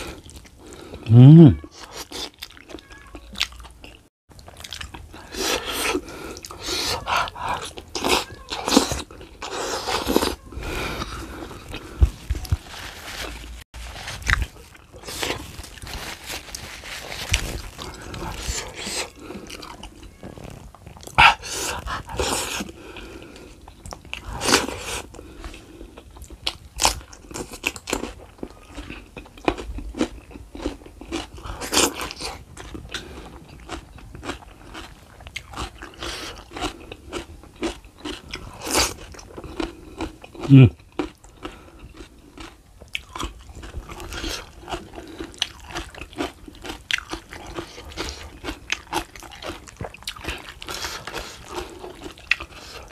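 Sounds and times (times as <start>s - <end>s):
person chewing noisily: 0.0s - 52.9s.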